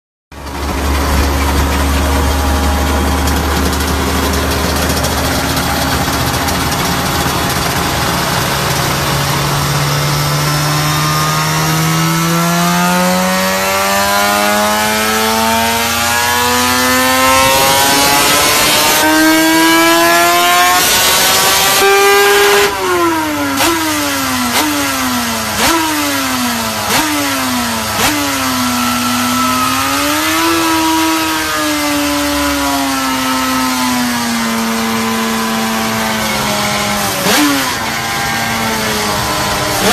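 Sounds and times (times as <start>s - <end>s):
race engine revving: 0.3s - 39.9s.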